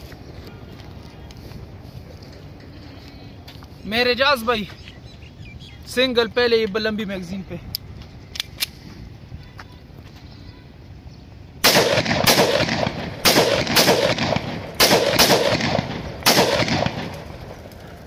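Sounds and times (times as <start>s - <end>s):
gunshots with echo: 11.6s - 17.4s.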